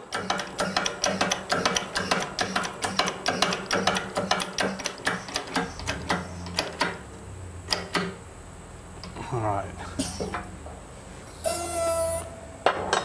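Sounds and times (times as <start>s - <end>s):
press pump rapid clicking: 0.1s - 7.0s
sharp click: 0.1s - 7.0s
low hum: 5.4s - 11.4s.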